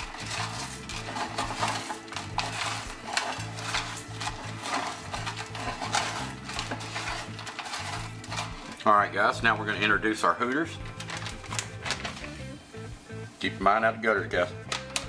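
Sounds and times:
fried onions crackling and crunching: 0.0 - 8.9, 10.8 - 12.4
background music with bass line: 0.0 - 15.0.

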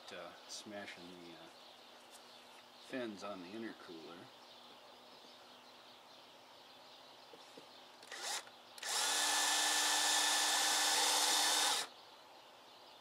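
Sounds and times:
cordless drill whining: 8.0 - 11.9
drill bit drilling into metal: 8.1 - 11.9.

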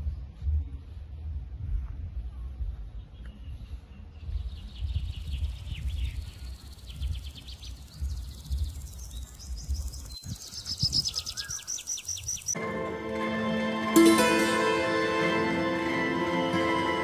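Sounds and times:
birds chirping: 2.9 - 12.6.

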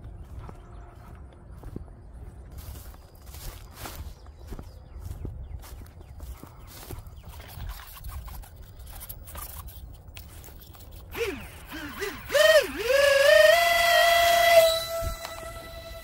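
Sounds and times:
electric ducted fan whine: 11.0 - 16.0.

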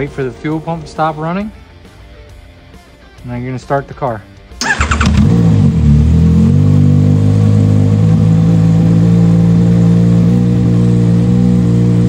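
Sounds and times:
motorcycle engine idling fast: 4.6 - 12.0.

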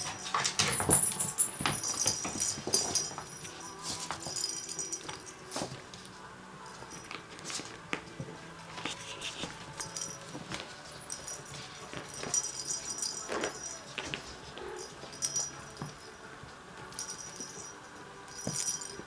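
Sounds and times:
small bell jingling in toy ball: 0.0 - 5.8, 9.0 - 19.0
paws tapping and scratching: 0.0 - 6.1.

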